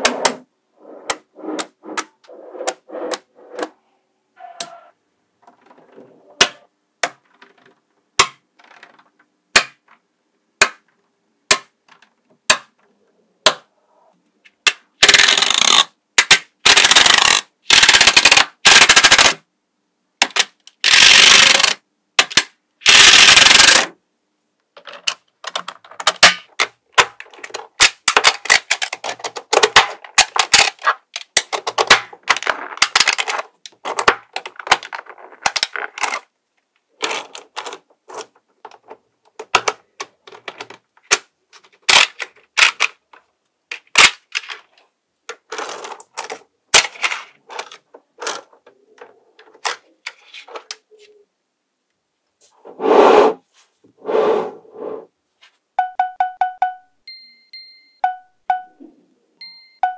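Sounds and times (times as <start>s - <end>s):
magnetic balls clicking together: 14.6s - 19.4s, 20.2s - 23.9s.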